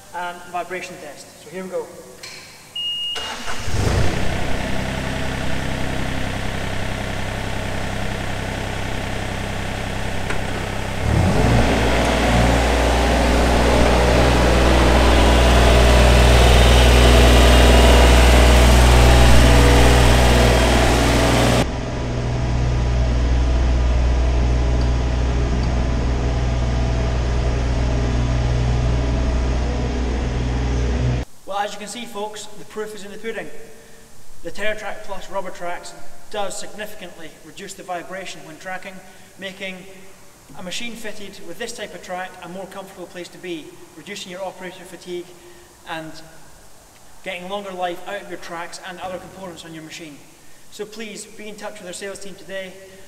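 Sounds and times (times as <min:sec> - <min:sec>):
excavator diesel engine revving: 0:03.2 - 0:31.2.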